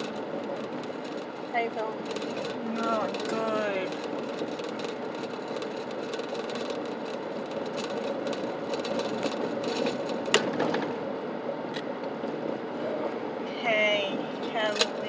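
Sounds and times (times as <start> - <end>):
faint rattles: 0.0 - 11.0
car cabin road and engine noise: 0.0 - 15.0.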